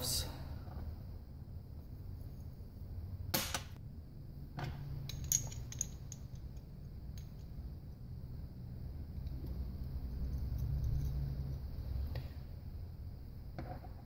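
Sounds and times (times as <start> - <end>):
steady low hum: 0.0 - 14.0
small metal parts clicking and scraping: 5.0 - 7.6, 9.2 - 11.8.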